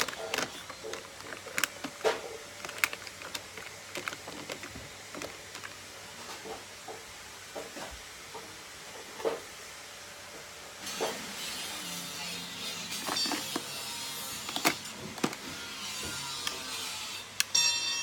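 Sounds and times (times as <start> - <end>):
plastic cases clicking and knocking: 0.0 - 6.6, 13.0 - 13.7, 14.4 - 15.6.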